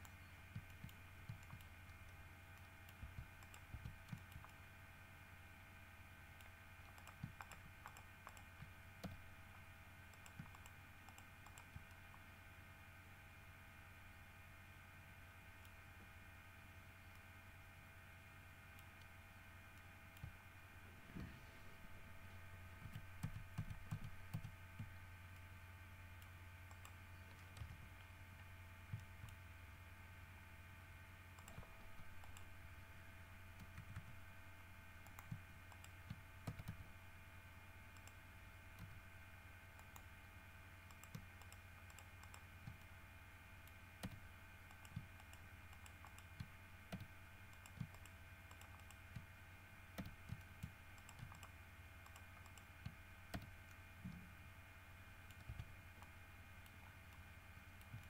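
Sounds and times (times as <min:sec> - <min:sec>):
keyboard and mouse clicks: 0:00.0 - 0:04.6, 0:06.4 - 0:12.2, 0:18.7 - 0:20.4, 0:22.8 - 0:25.0, 0:26.2 - 0:28.1, 0:28.9 - 0:29.4, 0:31.4 - 0:32.5, 0:33.6 - 0:34.2, 0:35.0 - 0:36.8, 0:38.0 - 0:39.0, 0:39.8 - 0:40.1, 0:40.9 - 0:43.0, 0:43.6 - 0:49.3, 0:50.0 - 0:54.2, 0:55.2 - 0:57.2, 0:57.8 - 0:58.0
faint electrical hum: 0:00.0 - 0:58.0.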